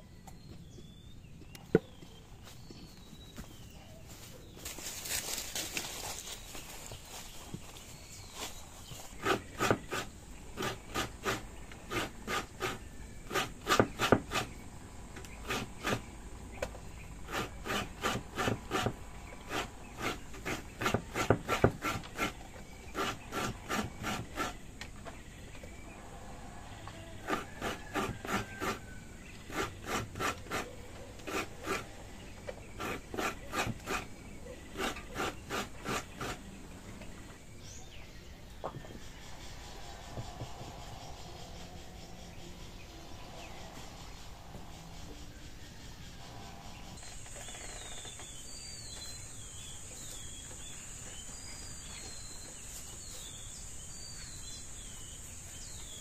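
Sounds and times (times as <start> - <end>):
coconut rasping on grater: 9.1 - 14.6, 15.3 - 16.1, 17.3 - 24.6, 27.1 - 36.5.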